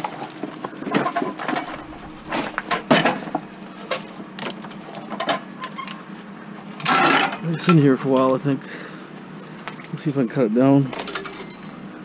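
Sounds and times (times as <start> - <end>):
scrap metal clanking: 0.9 - 4.6.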